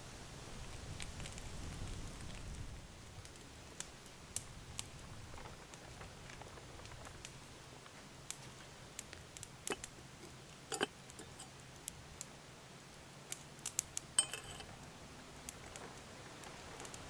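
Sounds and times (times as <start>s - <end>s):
metal kettle clinking: 10.7s - 11.5s, 14.2s - 14.7s.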